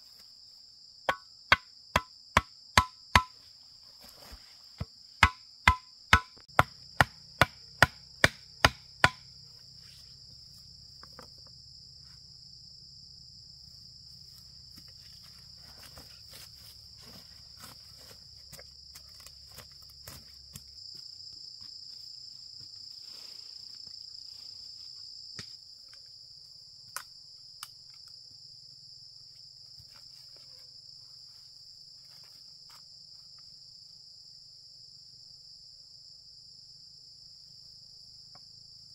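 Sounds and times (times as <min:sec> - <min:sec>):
insects buzzing: 0:00.0 - 0:38.9
chopping wood: 0:01.1 - 0:03.3, 0:05.2 - 0:09.3.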